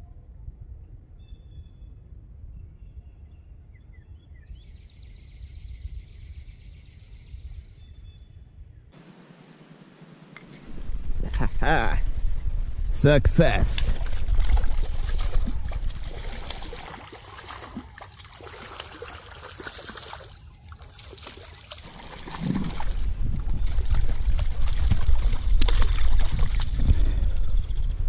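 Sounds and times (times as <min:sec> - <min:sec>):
low microphone rumble: 0:05.4 - 0:16.9, 0:21.9 - 0:28.0
river water splashing: 0:13.4 - 0:26.8.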